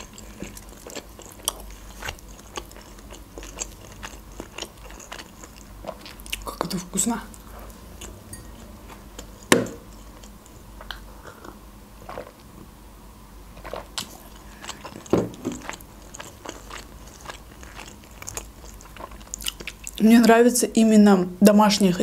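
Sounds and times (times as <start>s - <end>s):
person chewing: 0.0s - 12.5s, 13.5s - 20.0s.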